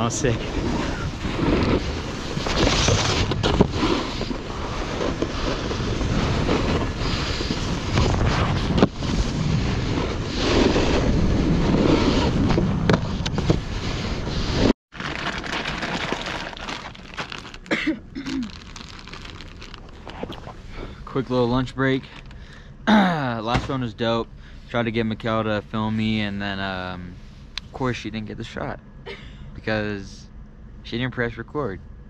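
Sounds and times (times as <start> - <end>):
snowboard sliding on snow: 0.0 - 14.7.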